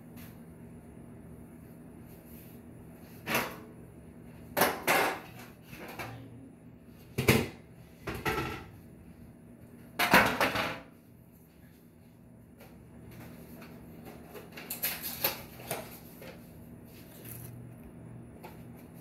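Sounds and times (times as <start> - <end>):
kitchen knocks and rustles: 4.5 - 6.3, 7.0 - 8.8, 9.9 - 11.0.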